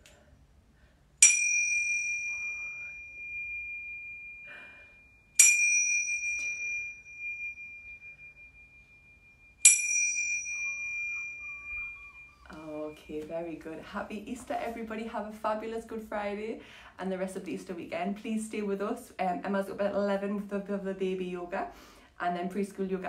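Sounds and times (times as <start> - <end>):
tingsha cymbals ringing: 1.2 - 13.7.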